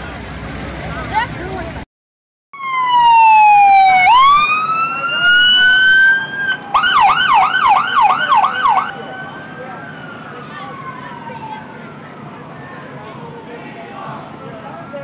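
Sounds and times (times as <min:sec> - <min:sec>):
police siren wailing and yelping: 0:02.6 - 0:13.7.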